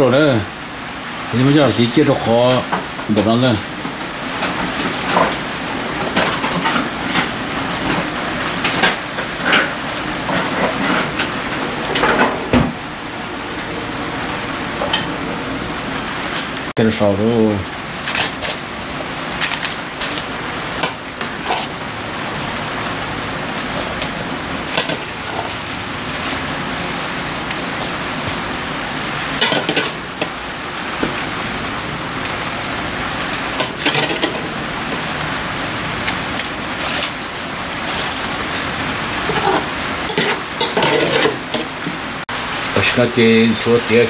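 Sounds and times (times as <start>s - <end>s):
clicks and rustles of handling meat: 18.0s - 21.8s, 23.1s - 28.5s, 35.8s - 42.0s.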